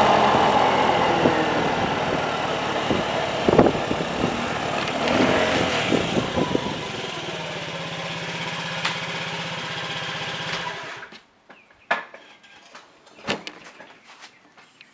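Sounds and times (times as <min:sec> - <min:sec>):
scooter engine idling: 0:00.0 - 0:11.1.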